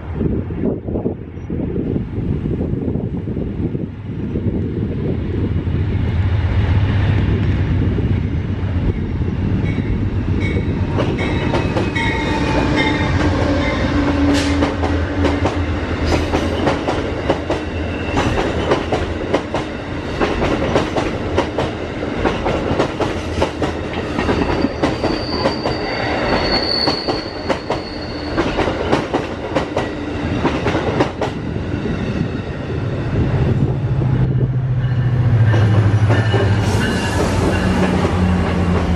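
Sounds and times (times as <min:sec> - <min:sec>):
passenger train rumbling past: 0:00.0 - 0:38.9
high-pitched wheel squeals: 0:24.4 - 0:28.6.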